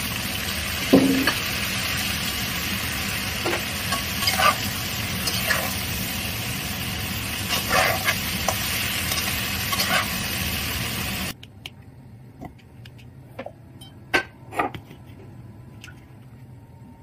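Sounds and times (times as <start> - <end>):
vegetables sizzling in a wok: 0.0 - 11.4
metal spatula scraping: 3.9 - 5.8, 7.5 - 10.3.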